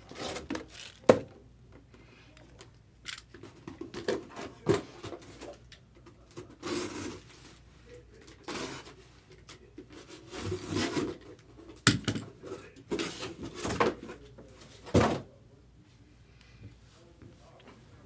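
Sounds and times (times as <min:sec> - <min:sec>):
cardboard box rustling and scraping: 0:10.2 - 0:11.2.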